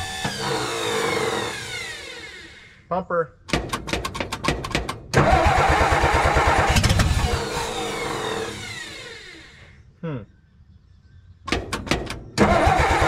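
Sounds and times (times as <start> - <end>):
starter cranking engine: 3.5 - 9.7, 11.6 - 13.0.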